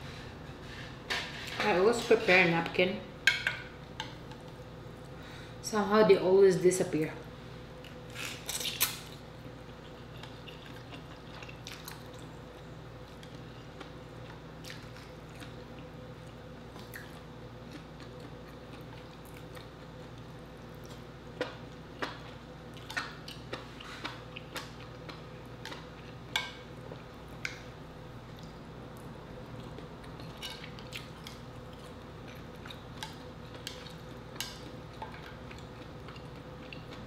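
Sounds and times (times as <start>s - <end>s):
steady low hum: 0.0s - 37.0s
person chewing noodles: 7.8s - 27.6s, 28.3s - 37.0s.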